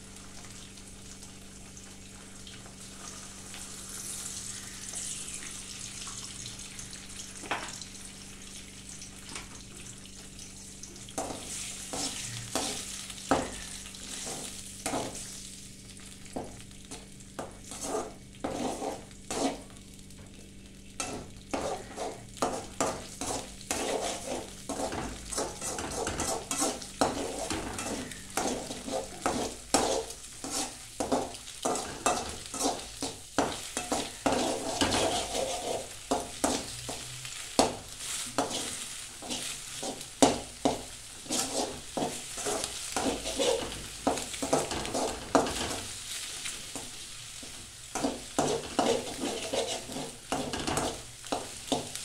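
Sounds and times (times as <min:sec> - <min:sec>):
eggs sizzling: 0:00.0 - 0:52.0
metal spoon scraping pan: 0:17.6 - 0:19.7, 0:21.0 - 0:37.0, 0:40.6 - 0:45.9, 0:48.0 - 0:51.8.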